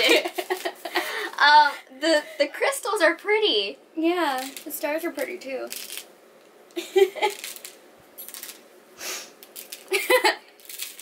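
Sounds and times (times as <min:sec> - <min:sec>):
people giggling: 0:00.0 - 0:01.2, 0:06.8 - 0:07.4, 0:09.9 - 0:10.4.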